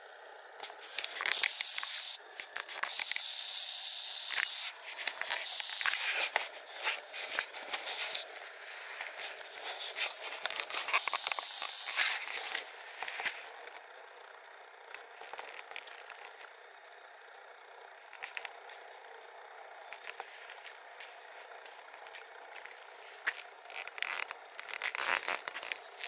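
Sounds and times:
dry leaves and twigs crackling: 0:00.6 - 0:03.0, 0:04.3 - 0:13.8, 0:19.8 - 0:26.0.

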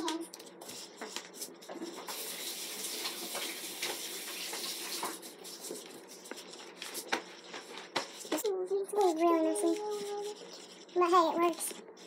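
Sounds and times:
tap running into sink: 0:02.1 - 0:05.2.

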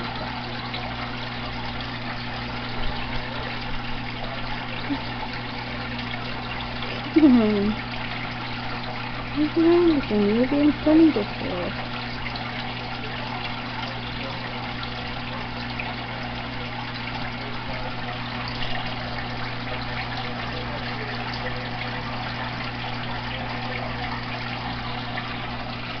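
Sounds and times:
low motor hum: 0:00.0 - 0:14.6
water trickling: 0:00.0 - 0:26.0.

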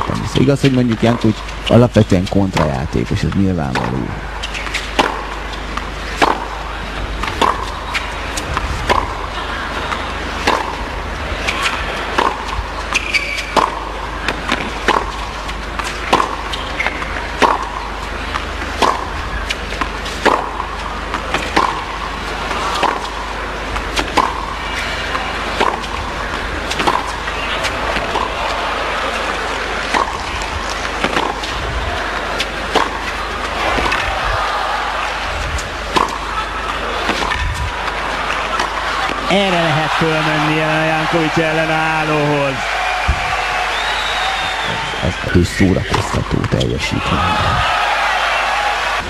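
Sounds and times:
arena crowd hum: 0:00.0 - 0:49.0
tennis ball hits: 0:03.8 - 0:10.8, 0:11.4 - 0:24.8, 0:25.4 - 0:28.4, 0:29.1 - 0:31.5, 0:32.3 - 0:34.0, 0:35.9 - 0:39.2.

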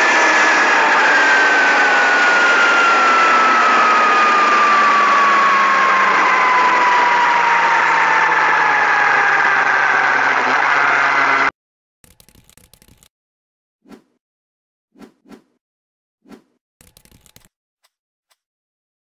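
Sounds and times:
falling whine: 0:00.0 - 0:11.5
motorcycle engine at speed: 0:00.0 - 0:11.5.

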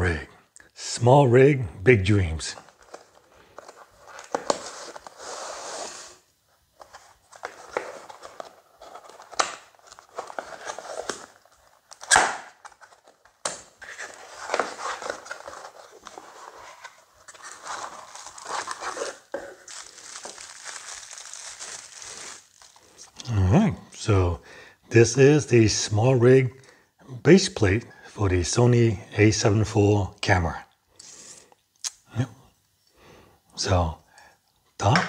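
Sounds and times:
bubble-wrap bag crinkling: 0:17.3 - 0:23.1.

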